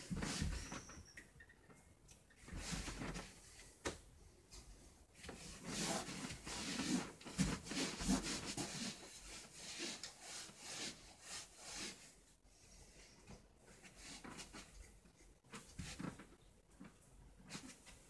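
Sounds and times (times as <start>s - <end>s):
clothing rustling: 0.0s - 1.0s.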